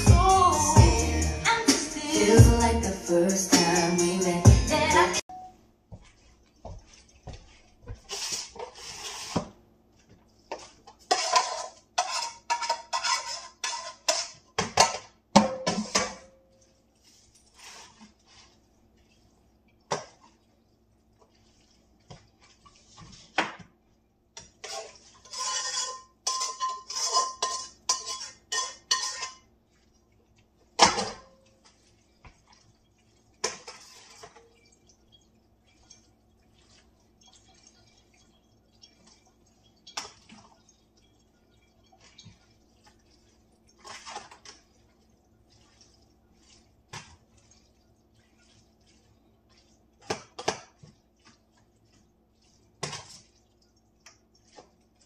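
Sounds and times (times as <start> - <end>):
spoon scraping a pan: 5.9 - 18.7, 24.4 - 29.6, 30.8 - 44.7
spoon and dishes clinking: 25.2 - 29.5.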